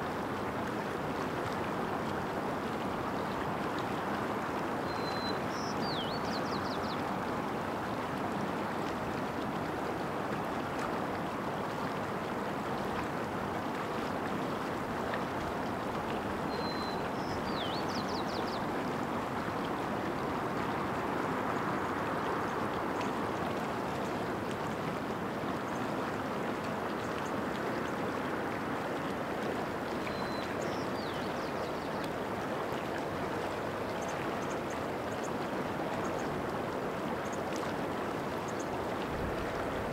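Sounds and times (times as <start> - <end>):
creek flowing: 0.0 - 39.9
small bird singing: 4.9 - 7.0, 16.6 - 18.7.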